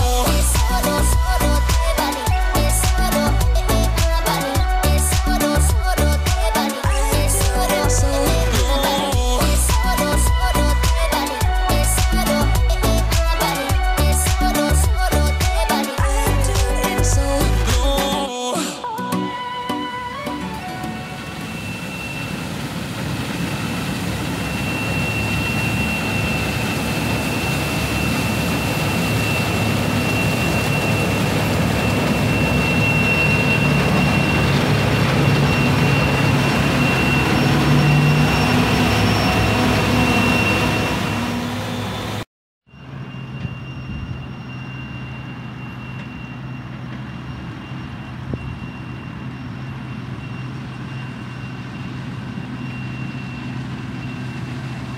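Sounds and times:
harvest machinery engine drone: 0.0s - 18.3s, 20.4s - 42.2s, 42.9s - 54.9s
high mechanical whine: 20.6s - 54.9s.

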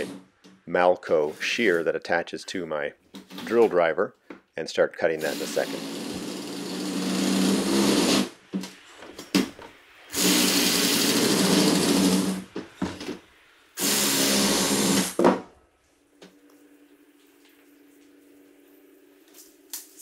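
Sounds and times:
drill shear cutting metal siding: 5.2s - 8.3s, 10.1s - 12.4s, 13.8s - 15.2s.

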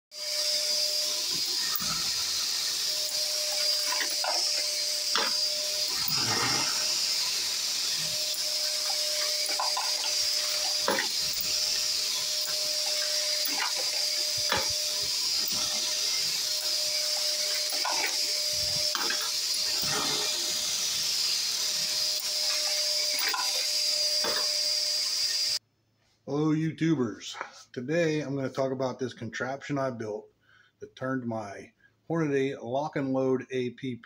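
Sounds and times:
motor whirring hiss: 0.2s - 25.6s.

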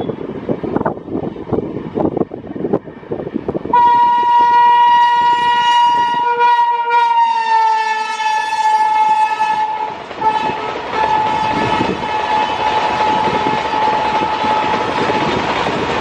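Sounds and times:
train wheels rumbling on rails: 0.0s - 16.0s
train horn blast: 3.7s - 14.9s.

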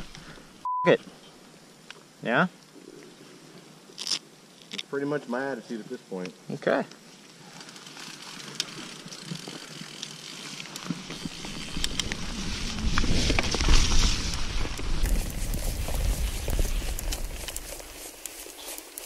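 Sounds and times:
wind: 0.0s - 19.0s
bike clicks and rattles: 7.5s - 19.0s
tyre rolling rumble: 10.9s - 18.0s.

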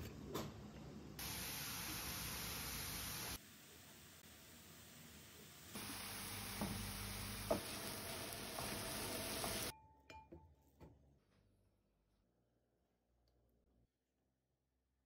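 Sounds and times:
carrots sizzling in a pan: 1.2s - 9.7s
wooden spoon stirring: 6.1s - 9.7s
spoon knocking on pan: 6.5s - 10.4s.

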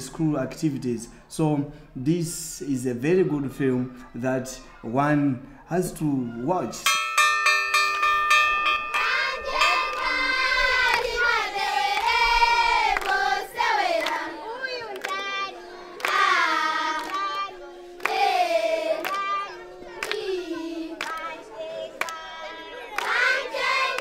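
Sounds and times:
bell ringing: 6.8s - 11.4s
children singing together: 8.9s - 24.0s.

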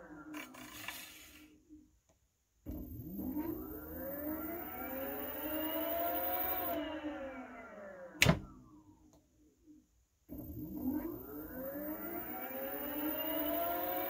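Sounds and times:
electric motor whine: 3.0s - 8.2s, 10.9s - 14.0s.

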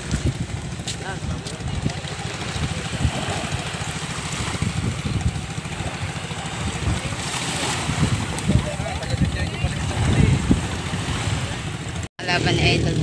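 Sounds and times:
boat engine pulsing drone: 0.0s - 13.0s.

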